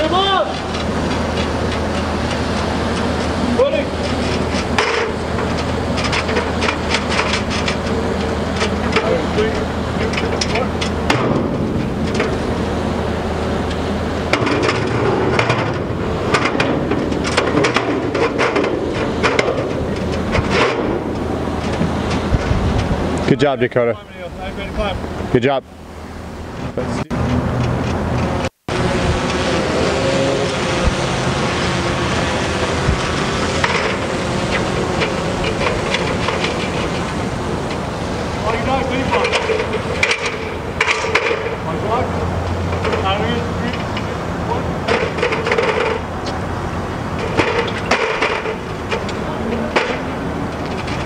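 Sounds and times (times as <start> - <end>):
metal ladder clanking: 0.0 - 12.6, 14.3 - 22.9, 32.4 - 37.8, 38.4 - 42.0, 42.7 - 46.4, 47.1 - 51.0
steady rushing background noise: 0.0 - 51.0
metal ladder knocking and clicking: 4.1 - 9.2.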